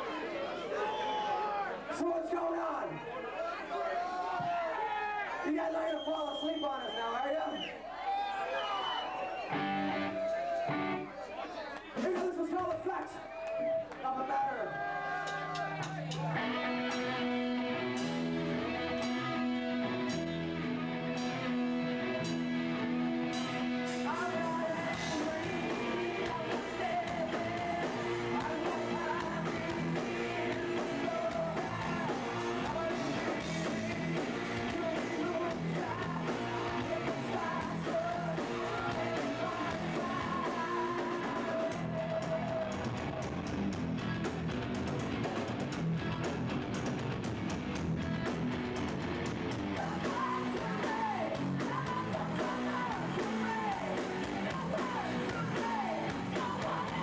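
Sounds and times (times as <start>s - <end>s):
drums: 4.1s - 4.8s, 9.1s - 11.1s, 11.8s - 57.0s
electric guitar: 9.5s - 11.1s, 15.2s - 57.0s
man singing into a microphone: 24.1s - 42.8s, 49.8s - 57.0s.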